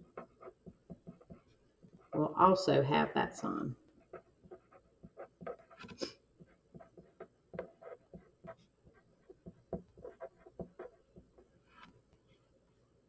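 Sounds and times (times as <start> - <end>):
pen scratching on paper: 0.0 - 2.4, 4.0 - 12.0.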